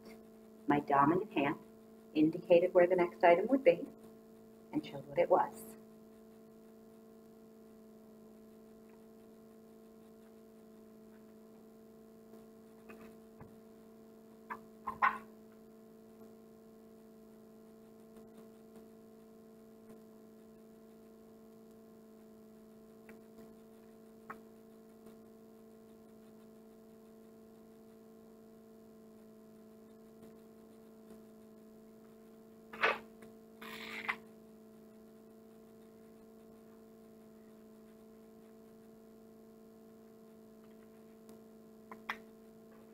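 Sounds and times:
electrical hum: 0.0 - 42.9
marker scratching on whiteboard: 8.6 - 11.4, 12.6 - 13.6, 14.4 - 15.3, 32.1 - 33.1.

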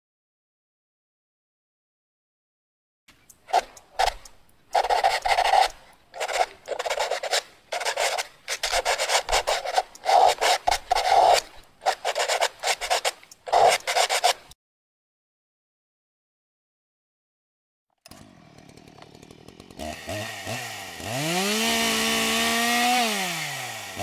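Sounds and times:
pen scratching on paper: 3.5 - 14.6.

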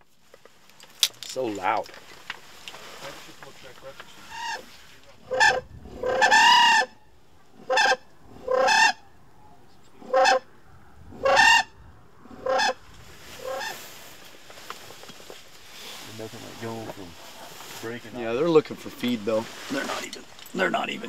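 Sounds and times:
cranes calling in flight: 4.2 - 7.0, 7.6 - 9.1, 11.2 - 14.0.

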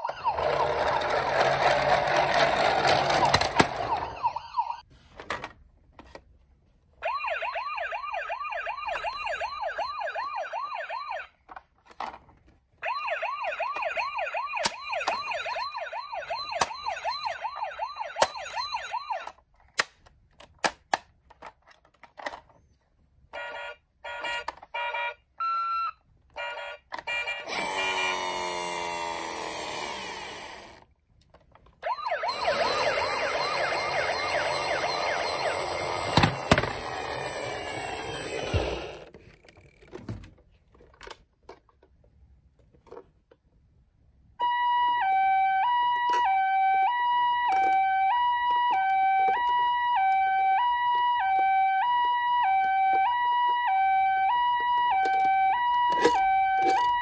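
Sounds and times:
fast toy siren sweeping up: 0.0 - 2.0, 2.6 - 4.8, 7.0 - 11.3, 12.8 - 19.3, 27.1 - 30.7, 31.8 - 39.0, 44.4 - 57.0
toy siren with falling sweeps: 0.0 - 4.8, 7.0 - 11.3, 12.8 - 19.4, 23.4 - 30.8, 31.8 - 39.0, 44.4 - 57.0.

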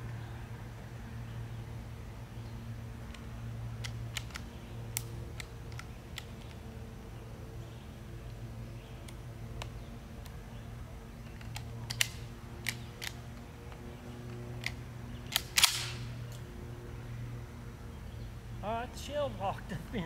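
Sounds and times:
shotgun metallic clicks: 3.0 - 6.7, 11.2 - 16.5.

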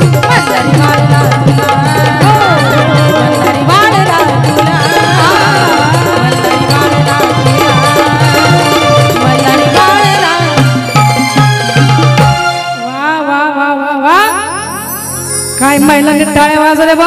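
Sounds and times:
drum beating steady rhythm: 0.0 - 13.0
folk band playing: 0.0 - 13.3.

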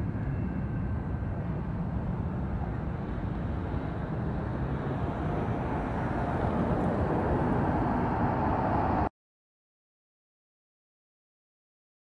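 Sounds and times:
freight train cars rumbling past: 0.0 - 9.1
road traffic: 0.0 - 9.1.

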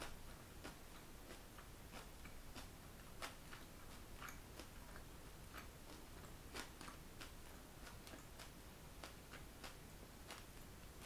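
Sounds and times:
person chewing crunchy food: 0.0 - 11.0.

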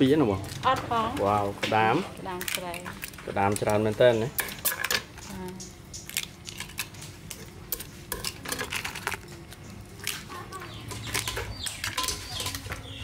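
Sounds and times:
utensils and dishes clinking: 0.4 - 13.0.

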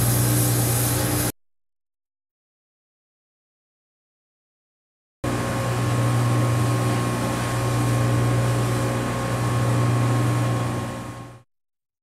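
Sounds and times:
air jet hissing: 0.0 - 1.3
machine hum: 5.2 - 11.4.

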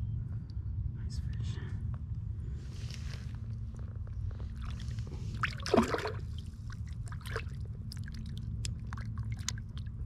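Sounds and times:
water splashing and dripping: 5.4 - 10.0.

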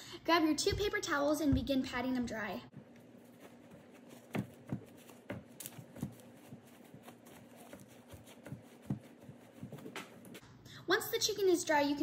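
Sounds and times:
paper towels rustling: 2.7 - 10.4.

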